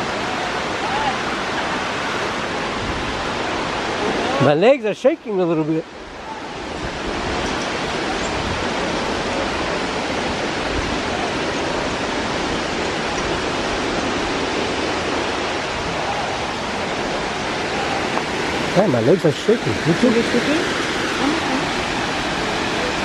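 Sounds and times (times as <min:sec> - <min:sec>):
waterfall rushing: 0:00.0 - 0:23.0.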